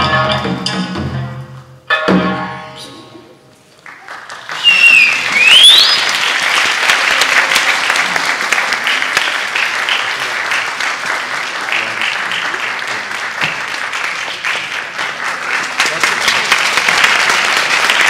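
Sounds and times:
audience applauding: 3.7 - 18.0.

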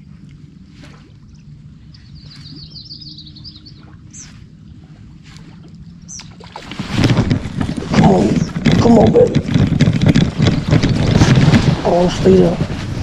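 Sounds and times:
low steady hum: 0.0 - 13.0
small birds chirping: 1.2 - 4.5, 6.0 - 6.4.

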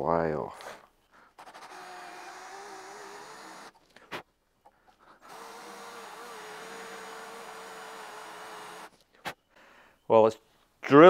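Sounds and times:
drill click: 1.4 - 3.8
electric drill boring into steel: 1.4 - 3.8, 5.2 - 8.9.

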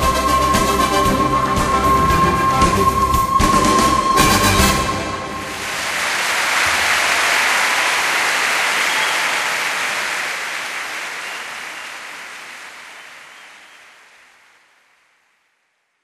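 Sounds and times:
crowd applause: 3.5 - 15.2.

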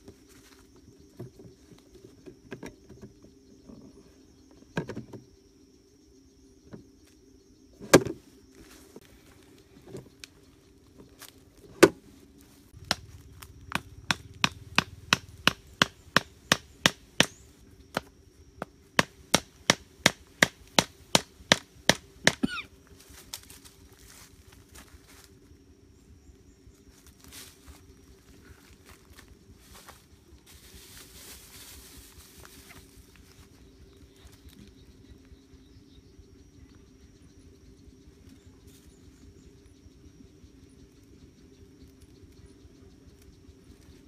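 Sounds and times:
knife chopping a stem: 12.8 - 18.1.

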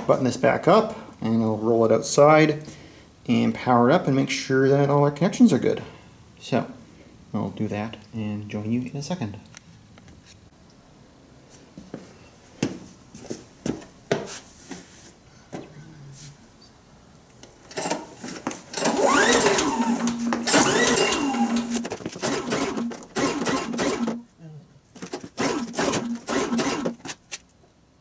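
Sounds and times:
recoil starter pulls: 18.7 - 24.2, 25.0 - 27.4
engine turning over whir: 18.7 - 24.3, 25.0 - 27.1.

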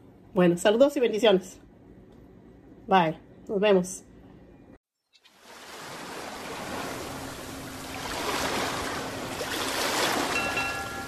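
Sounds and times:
ocean waves breaking: 5.4 - 11.0.

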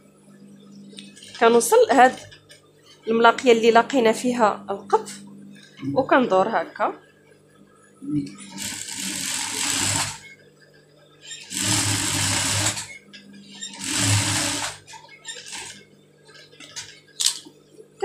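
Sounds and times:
steady low hum: 0.0 - 14.7
sewing machine stitching: 8.5 - 10.3, 11.3 - 15.8.

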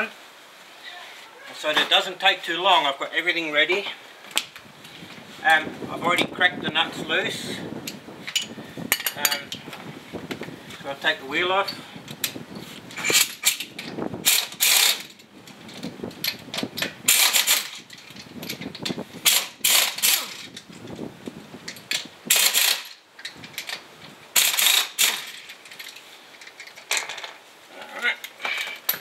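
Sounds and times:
pneumatic impact wrench bursts: 13.0 - 15.2, 17.1 - 17.9, 19.2 - 20.5, 22.3 - 23.0, 24.4 - 25.5.

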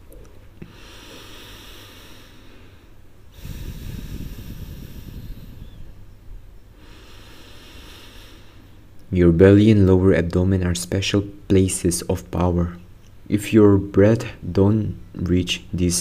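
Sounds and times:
person breathing deeply: 0.6 - 8.9.

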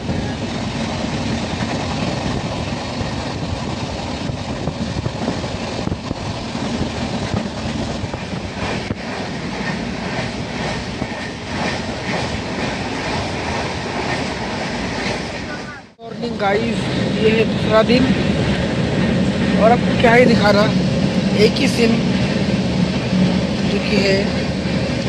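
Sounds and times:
wheels rumbling on rail: 0.0 - 25.0
rail joint clicks: 0.4 - 15.6.

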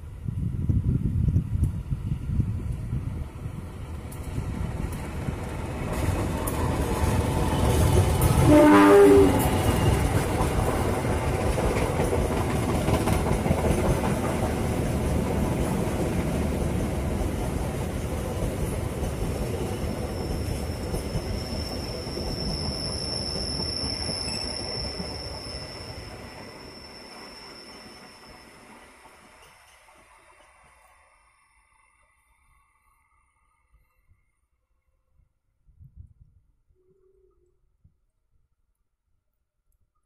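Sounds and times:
train carriages rumbling: 4.1 - 26.8
train horn blast: 8.3 - 10.0
high-pitched wheel squeal: 20.0 - 28.8.

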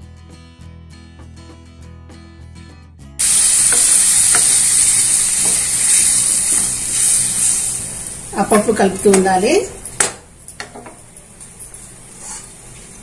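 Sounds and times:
soft guitar music: 0.0 - 4.6
water sizzling in hot pan: 3.2 - 9.4.

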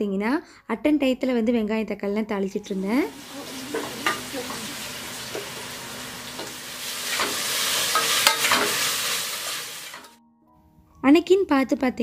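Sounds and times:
vegetables sizzling in a pot: 2.7 - 10.2
spatula scraping a pan: 3.4 - 10.1.

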